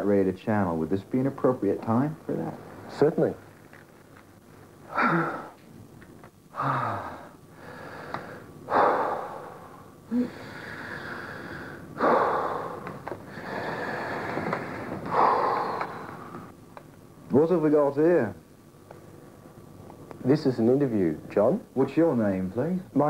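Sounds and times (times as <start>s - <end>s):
man breathing heavily: 6.5s - 16.5s.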